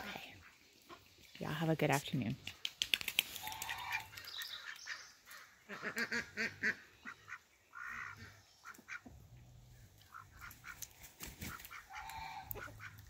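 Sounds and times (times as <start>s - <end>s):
ducks quacking: 3.4s - 9.3s, 10.0s - 13.0s.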